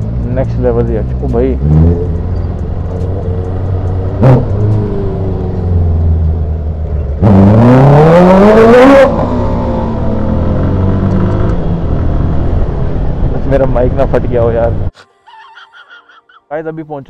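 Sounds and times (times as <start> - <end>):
motorcycle engine revving: 0.8 - 13.4.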